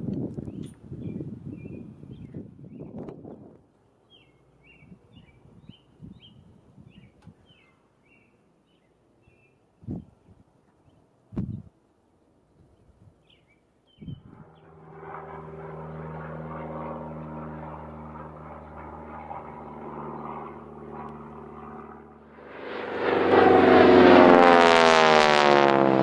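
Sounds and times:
propeller aircraft drone: 0.0s - 8.2s, 13.2s - 26.0s
loud airplane passing: 14.0s - 26.0s.

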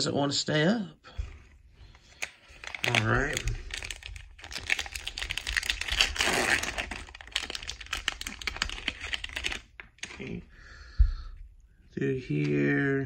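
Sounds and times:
plastic wrapper crinkling and tearing: 1.9s - 10.4s.

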